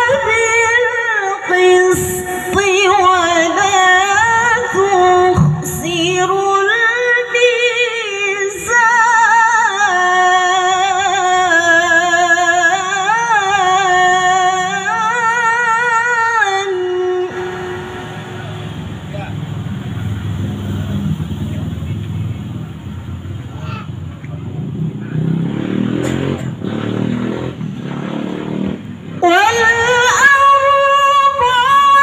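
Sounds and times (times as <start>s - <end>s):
woman reciting melodically: 0.0s - 17.8s, 29.2s - 32.0s.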